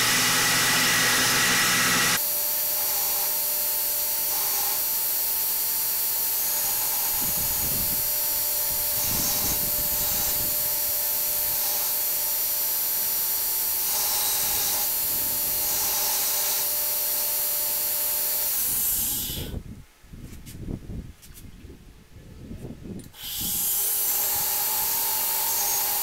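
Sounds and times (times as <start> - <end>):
steel grinding on belt: 0.0 - 19.5
belt grinder whine and hiss: 0.0 - 19.6, 23.1 - 26.0.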